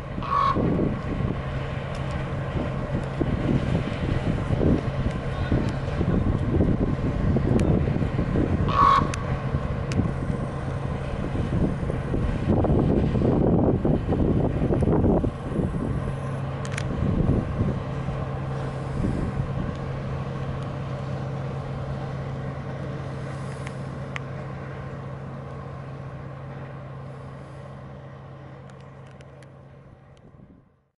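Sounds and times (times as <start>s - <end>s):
wind rumble on microphone: 0.0s - 21.2s, 29.9s - 30.8s
distant engine drone: 0.0s - 30.9s.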